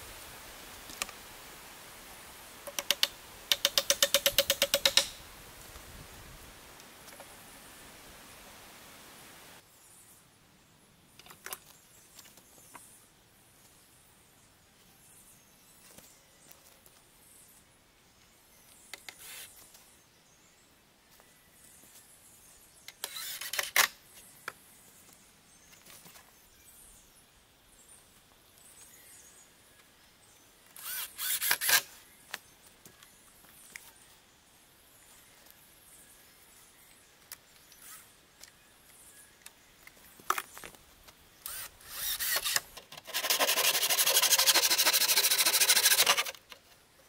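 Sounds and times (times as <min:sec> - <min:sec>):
quiet outdoor background: 0:00.0 - 0:47.0
rattling clicking woodworking bursts: 0:02.7 - 0:05.1, 0:41.5 - 0:46.5.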